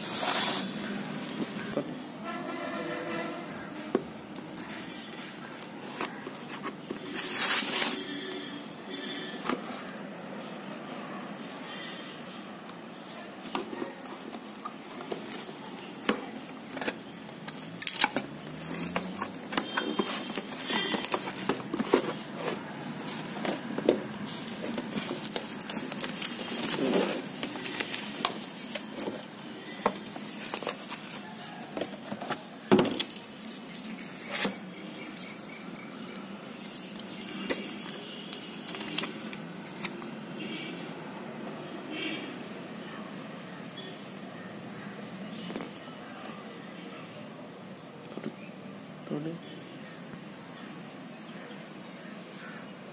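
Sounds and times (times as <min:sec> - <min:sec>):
cardboard and bubble wrap handling: 0:00.0 - 0:01.7, 0:05.4 - 0:08.2, 0:13.6 - 0:40.0.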